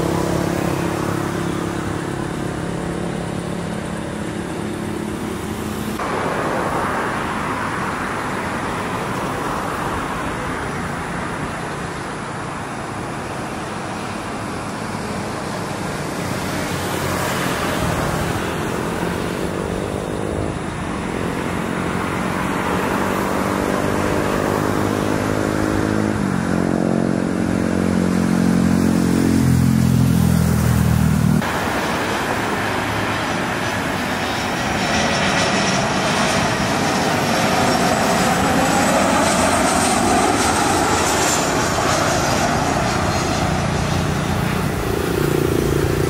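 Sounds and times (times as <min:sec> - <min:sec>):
jet airliner passing overhead: 0:00.0 - 0:46.0
jet engines whining at high power: 0:00.0 - 0:46.0.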